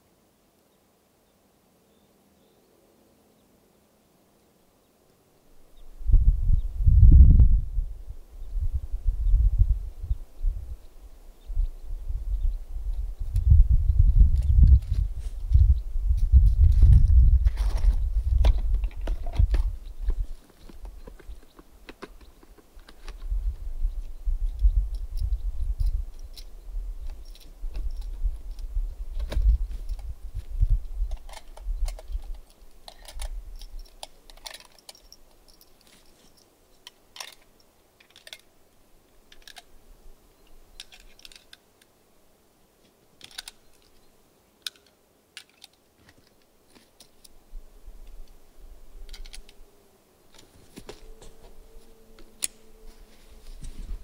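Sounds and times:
clicks and taps handling gear: 17.5 - 23.2, 31.1 - 38.5, 42.8 - 44.0, 44.6 - 47.4.

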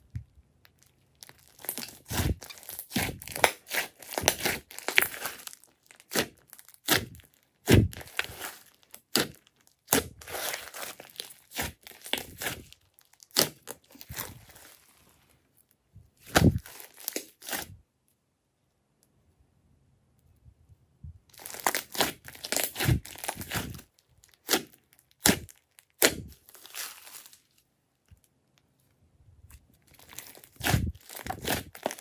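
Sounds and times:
slime squelching and popping: 0.1 - 14.8, 16.2 - 17.7, 21.3 - 27.4, 29.5 - 32.0.

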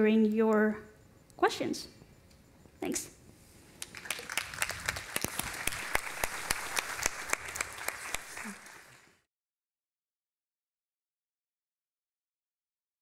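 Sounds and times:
audience applauding: 3.8 - 9.3.

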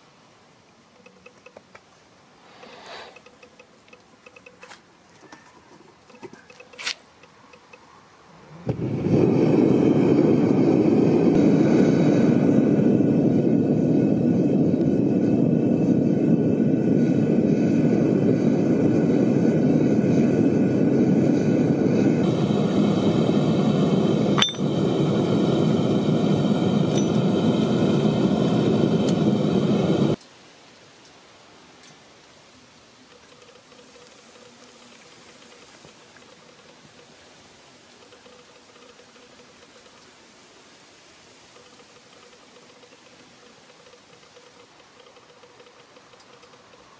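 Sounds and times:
gas burner rushing: 8.6 - 30.2.

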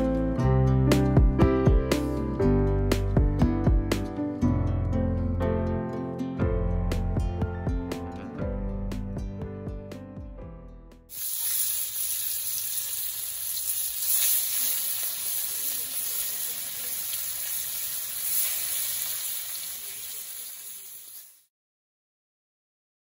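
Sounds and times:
soft guitar music: 0.0 - 11.1
fish sizzling in hot oil: 11.1 - 21.5.

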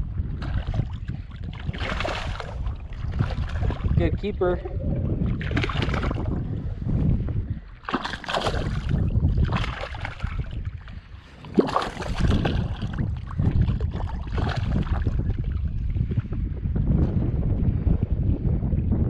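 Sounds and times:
fish thrashing in water: 0.0 - 4.0, 4.8 - 16.0
wind rumble on microphone: 0.0 - 19.0.

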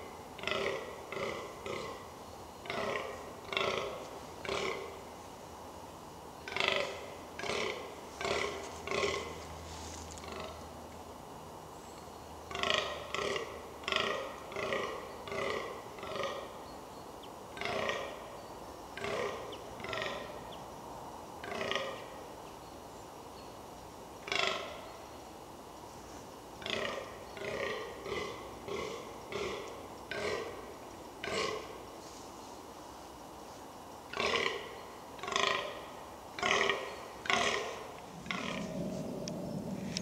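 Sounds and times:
deer groaning: 0.4 - 2.1, 26.6 - 31.8, 36.4 - 40.0.

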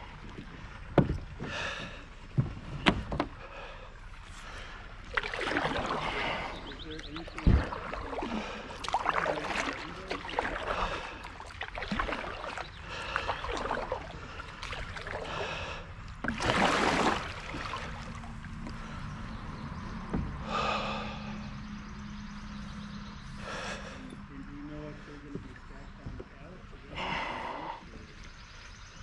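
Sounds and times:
paddle splashing in water: 4.1 - 19.0.

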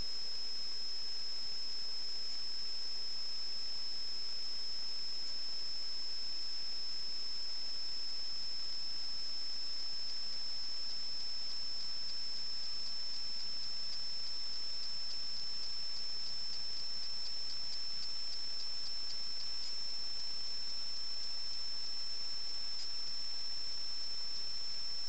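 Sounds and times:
faint regular ticks: 8.9 - 25.0.

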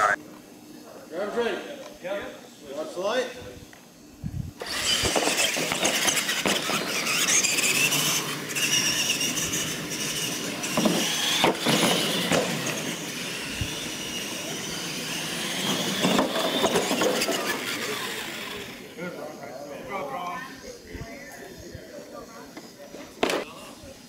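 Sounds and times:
toy truck electric motors whining: 4.6 - 19.4.

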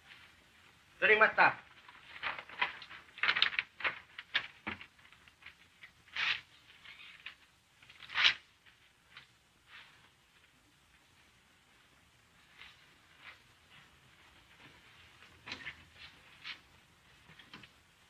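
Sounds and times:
paper rustling: 1.6 - 10.6.

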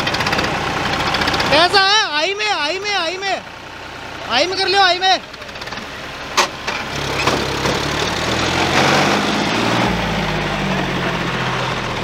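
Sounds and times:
tractor engines running hard: 0.0 - 12.0.

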